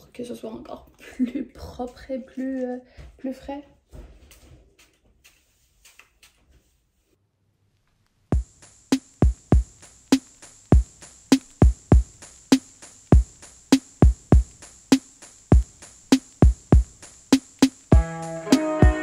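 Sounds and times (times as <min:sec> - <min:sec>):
drum machine beat: 0:08.3 - 0:19.0
hi-hat hiss: 0:08.3 - 0:19.0
snare or clap: 0:11.3 - 0:11.6, 0:17.4 - 0:17.9.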